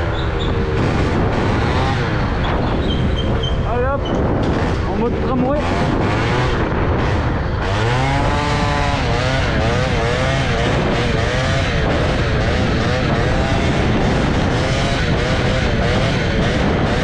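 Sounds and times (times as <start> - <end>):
two-stroke moped engine: 0.0 - 3.6, 4.6 - 17.0.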